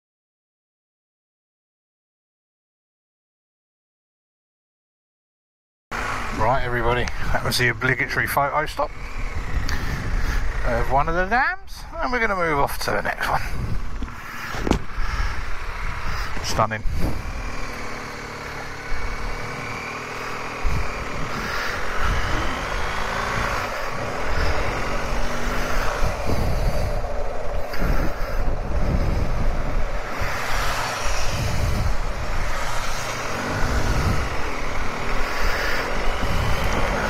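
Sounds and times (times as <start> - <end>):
motorcycle engine accelerating: 5.9 - 37.0
wind rumble on microphone: 6.5 - 12.0, 12.9 - 19.8, 20.4 - 37.0.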